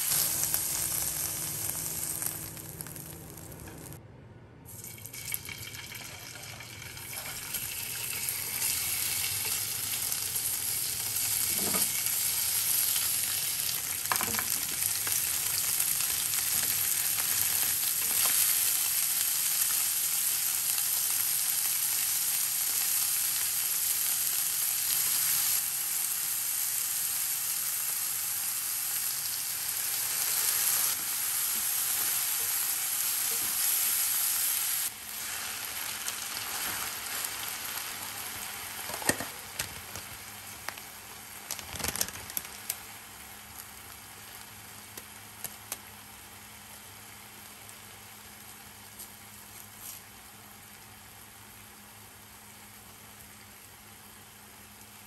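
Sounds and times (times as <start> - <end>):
food sizzling in oil: 0.0 - 4.0, 4.7 - 41.5.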